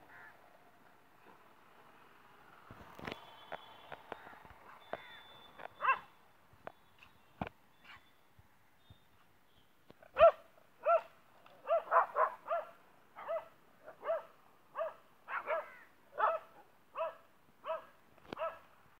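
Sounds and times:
dog barking: 0:05.8 - 0:06.1, 0:10.2 - 0:18.7.

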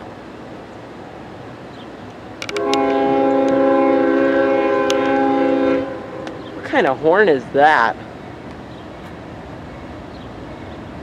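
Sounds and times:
locomotive air horn blast: 0:02.5 - 0:06.6.

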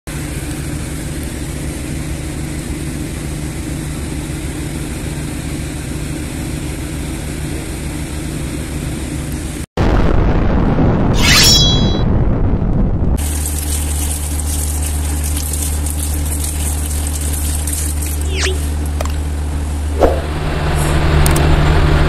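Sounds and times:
low mechanical drone with hiss: 0:00.1 - 0:09.6, 0:13.2 - 0:22.0
deep booming rumble: 0:09.8 - 0:11.2, 0:12.0 - 0:13.2.

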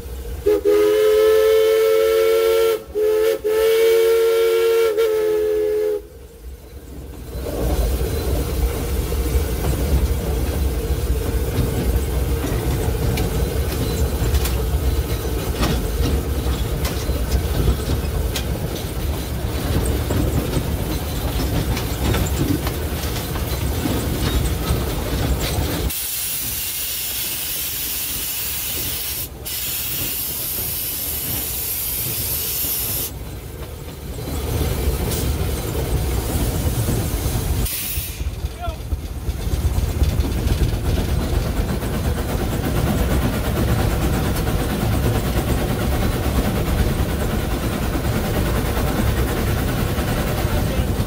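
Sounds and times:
steam locomotive rumble and clatter: 0:00.0 - 0:51.0
loud steam hiss: 0:25.6 - 0:33.2, 0:34.7 - 0:38.8.

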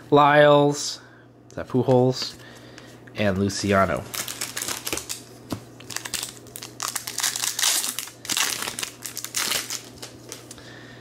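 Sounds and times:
foil wrapper crinkling: 0:03.9 - 0:10.6
hands tearing pack open: 0:04.1 - 0:10.6.

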